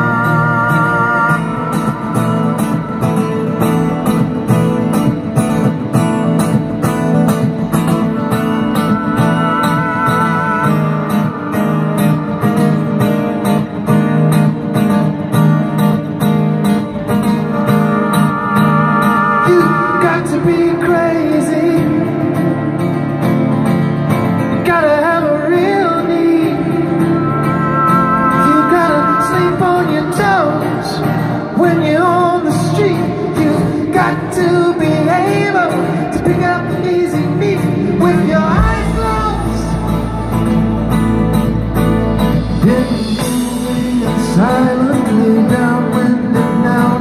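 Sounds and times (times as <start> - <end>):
strummed acoustic guitar: 0.0 - 47.0
lead vocal singing: 19.3 - 22.3, 24.7 - 40.9, 42.4 - 47.0
deep bass: 37.8 - 44.2.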